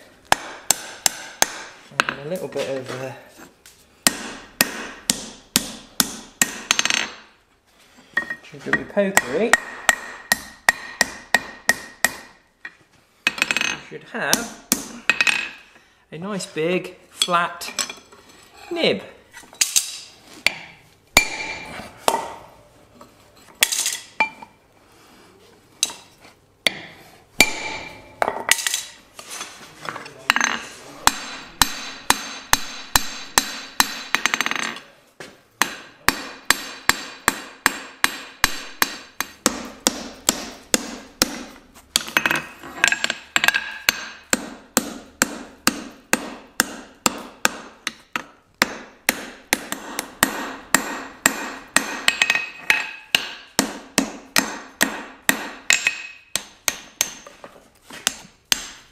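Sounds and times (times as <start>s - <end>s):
hammer striking steel on anvil: 4.1s - 7.2s, 8.2s - 12.4s, 19.6s - 22.4s, 26.7s - 29.0s, 30.3s - 34.8s, 35.6s - 57.3s.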